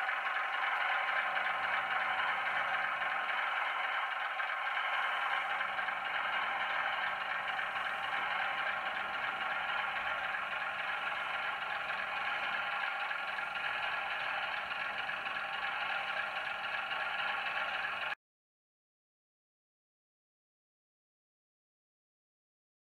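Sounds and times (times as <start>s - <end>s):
model train running on track: 0.0s - 18.2s.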